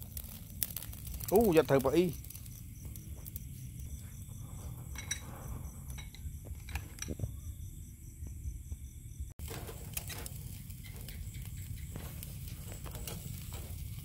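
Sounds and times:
light clinks and knocks: 0:02.3 - 0:07.4.

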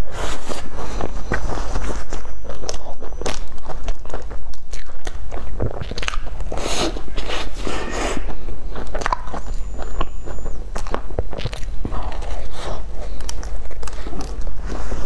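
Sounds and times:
chewing a pastry: 0:00.0 - 0:15.0
mouth clicks: 0:00.3 - 0:14.6.

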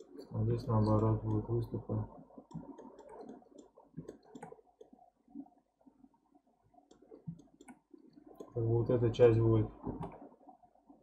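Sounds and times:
computer mouse clicking: 0:00.8 - 0:01.5, 0:02.5 - 0:05.0, 0:06.9 - 0:08.6.

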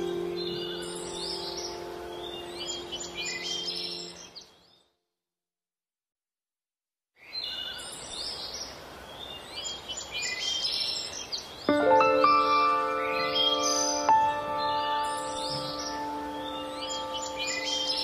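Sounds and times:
music track held notes: 0:00.0 - 0:04.2, 0:11.7 - 0:18.0
small birds chirping: 0:00.0 - 0:05.0, 0:07.2 - 0:18.0.

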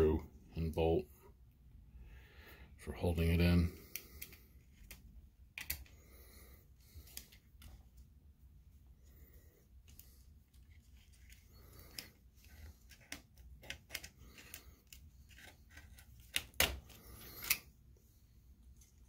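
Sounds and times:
screwdriver clicking and scraping: 0:11.0 - 0:16.6, 0:17.2 - 0:17.6.

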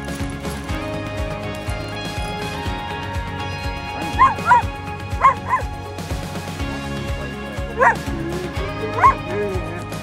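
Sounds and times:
background music: 0:00.0 - 0:10.0
dog play barks: 0:04.0 - 0:05.7, 0:07.8 - 0:08.1, 0:09.0 - 0:09.3.

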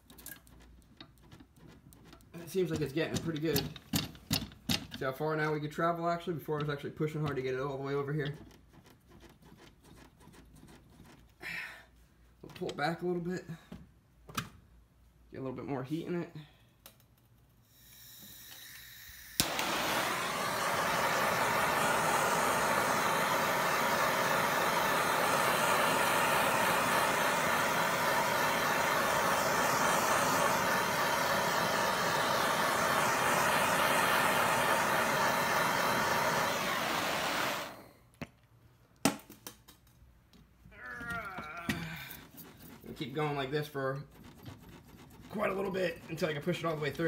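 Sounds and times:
blowtorch flame hissing: 0:17.7 - 0:38.0, 0:45.3 - 0:47.0
blowtorch ignition click: 0:17.9 - 0:37.9.

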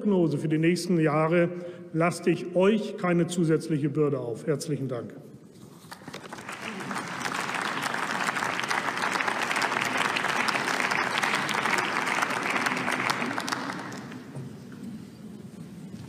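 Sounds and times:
crowd applauding: 0:06.2 - 0:14.5.

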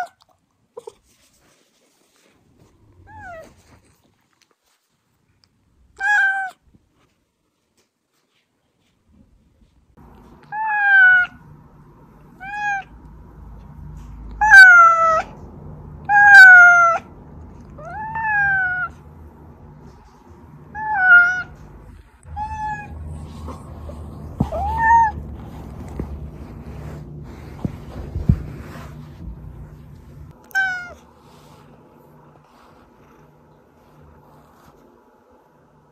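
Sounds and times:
cat meowing: 0:03.0 - 0:03.5, 0:06.0 - 0:06.6, 0:10.5 - 0:11.4, 0:12.4 - 0:12.9, 0:14.4 - 0:15.4, 0:16.0 - 0:17.1, 0:17.8 - 0:19.0, 0:20.7 - 0:25.3, 0:30.4 - 0:31.0.

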